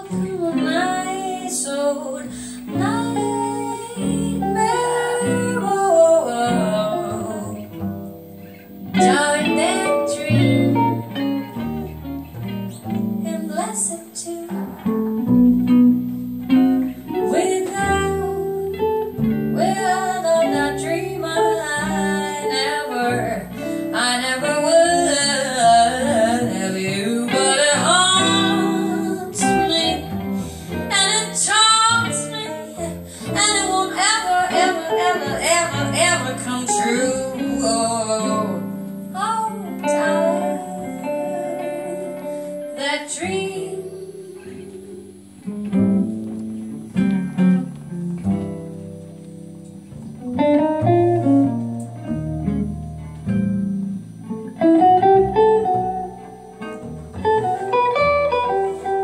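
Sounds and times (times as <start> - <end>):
woman singing jazz ballad: 0.0 - 12.2, 12.8 - 46.2
amplified electric guitar: 0.0 - 59.0.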